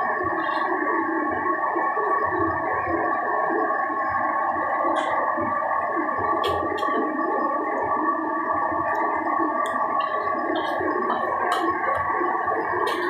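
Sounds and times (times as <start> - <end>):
droning hum: 0.0 - 13.0.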